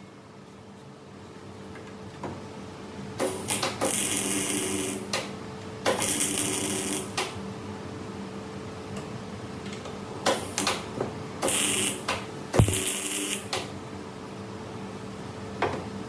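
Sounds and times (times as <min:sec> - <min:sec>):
welder welding bursts: 0:11.5 - 0:13.5.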